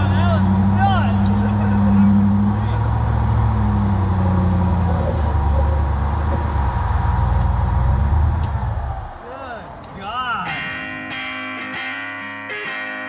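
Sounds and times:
engine running at low speed: 0.0s - 9.2s.

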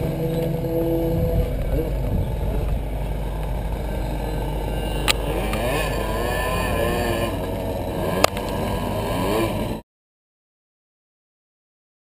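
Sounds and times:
kart engine at low revs: 0.0s - 9.8s.

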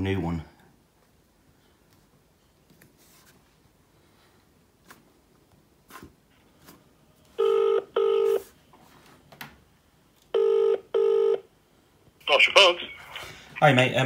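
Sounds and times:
double-ring ringback tone: 7.4s - 8.4s.

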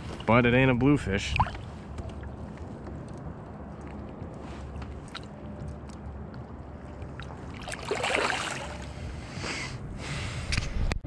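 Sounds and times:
water lapping and dripping: 4.9s - 8.9s
fish splashing: 7.2s - 8.9s.

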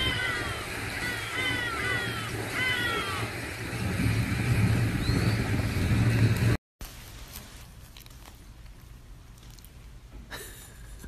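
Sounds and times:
high-pitched animal calls: 0.0s - 3.3s
low rumble: 0.0s - 6.6s.

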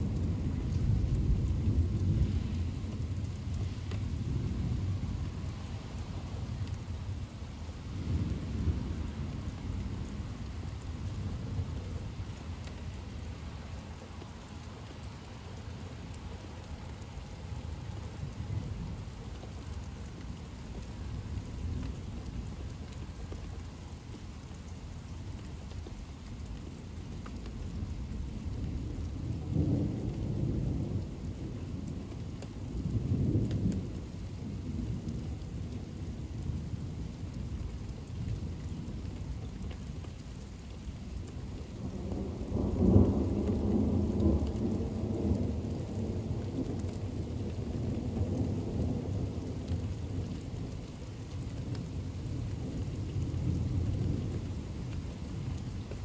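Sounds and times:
steady rain falling: 0.0s - 56.0s
thunder rumbling: 41.0s - 51.0s.

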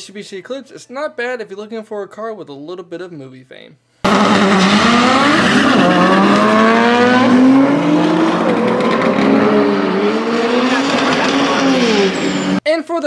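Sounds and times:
car engine accelerating: 4.0s - 12.6s
loud road noise: 4.1s - 12.6s.

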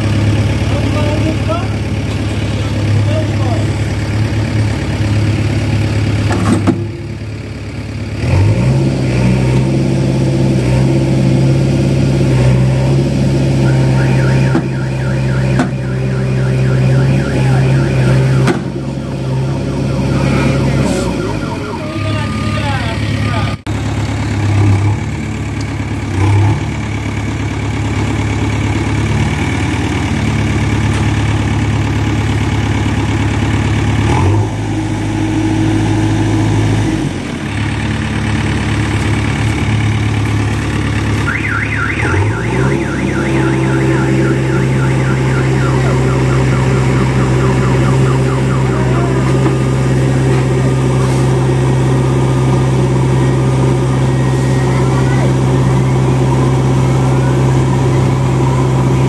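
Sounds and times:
heavy diesel engine under load: 0.0s - 59.0s
electronic alarm warbling: 13.4s - 23.5s, 41.2s - 59.0s.

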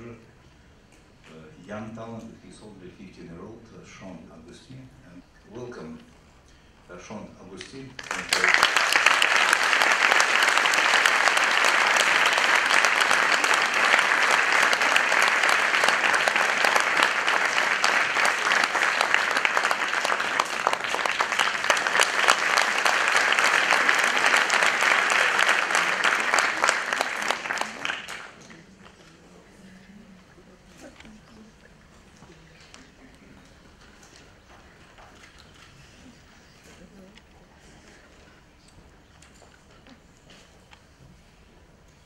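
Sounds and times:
audience applauding: 8.0s - 28.7s.

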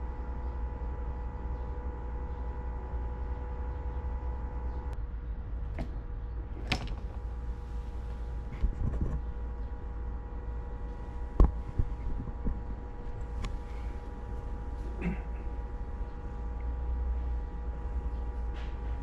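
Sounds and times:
faint steady tones: 0.0s - 19.0s
low hum: 0.0s - 19.0s
sharp clicks and knocks: 6.6s - 7.3s.

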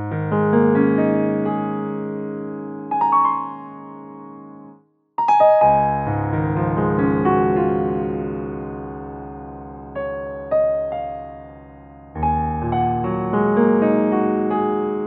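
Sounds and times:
soft piano chords: 0.0s - 15.0s.

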